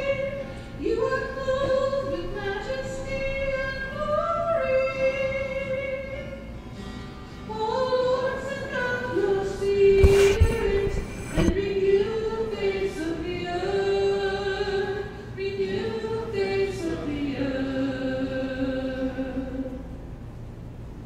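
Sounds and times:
person singing unaccompanied psalm: 7.5 - 19.9.

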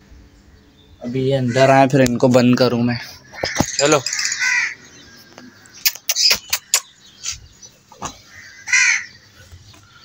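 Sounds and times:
crows cawing: 1.3 - 2.0, 2.9 - 5.8, 8.0 - 10.0
sharp clicks: 5.6 - 6.9.

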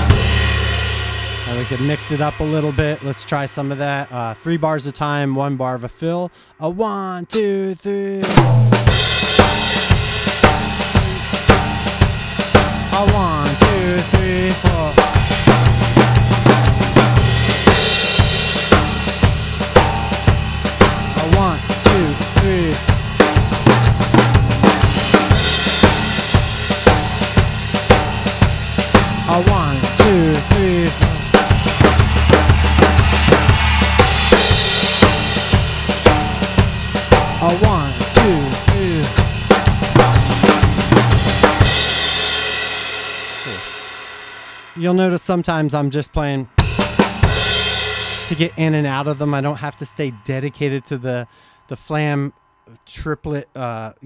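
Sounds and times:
drum fill on toms: 0.0 - 3.8, 8.2 - 43.9, 46.5 - 50.2
drum kit groove: 0.0 - 53.8.

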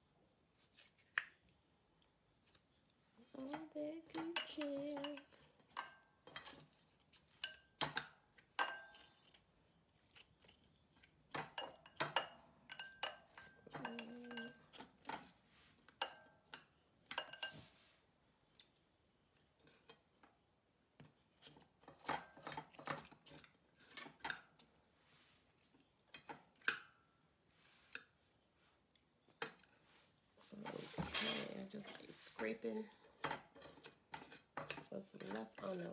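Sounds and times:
metal utensil clicking on a dish: 7.3 - 9.1, 11.4 - 14.7.

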